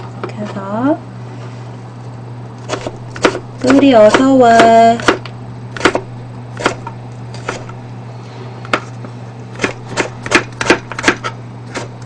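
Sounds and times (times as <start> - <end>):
knife slicing on plastic cutting board: 2.6 - 7.8.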